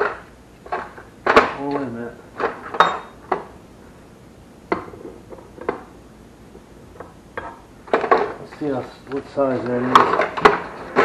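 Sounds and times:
metal tools clinking in drawer: 2.7s - 3.2s.

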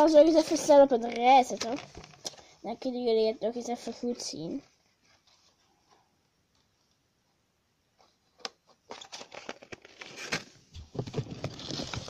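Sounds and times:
plastic packaging crinkling: 8.9s - 12.0s.

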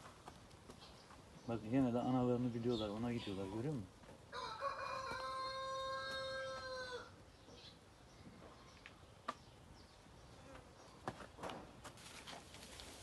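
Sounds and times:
rooster crowing: 4.3s - 7.1s.

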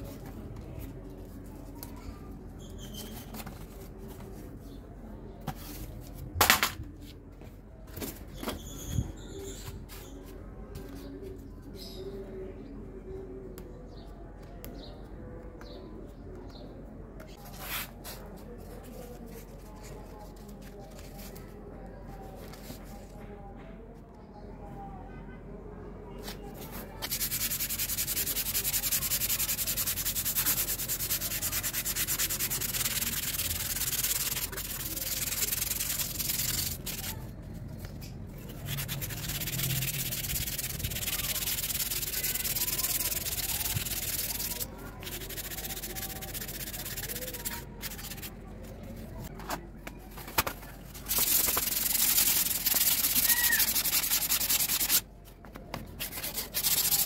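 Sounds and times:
sandpaper rubbing on painted wing: 26.7s - 37.3s, 38.4s - 48.7s, 51.0s - 55.1s, 55.9s - 57.0s.

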